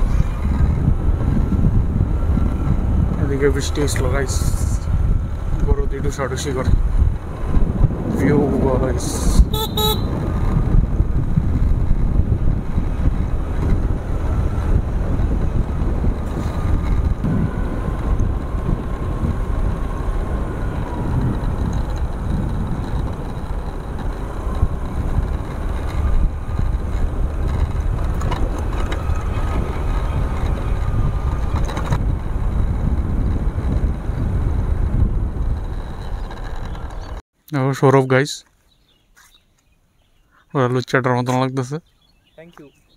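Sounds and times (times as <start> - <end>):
road noise: 0.0 - 37.2, 38.0 - 42.9
wind rushing on microphone: 0.0 - 37.2
motorcycle engine: 6.8 - 37.2.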